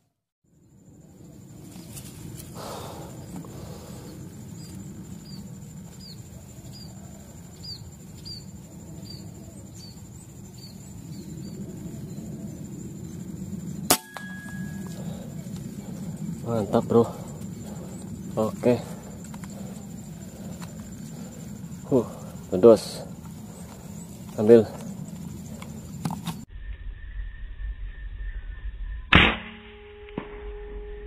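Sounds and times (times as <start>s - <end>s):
insect whine: 0.4s - 31.0s
bird chirping: 3.1s - 13.3s
air rifle shot: 13.9s - 14.8s, 29.1s - 29.6s.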